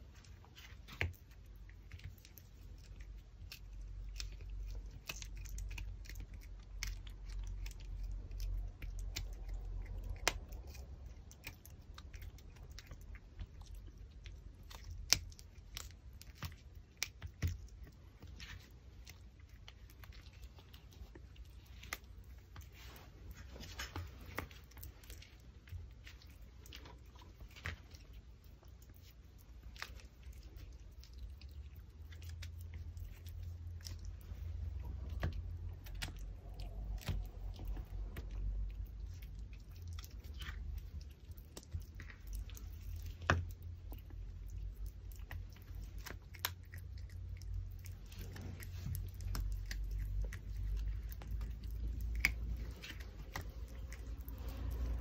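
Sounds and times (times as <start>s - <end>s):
puppy chewing bone: 0.0s - 55.0s.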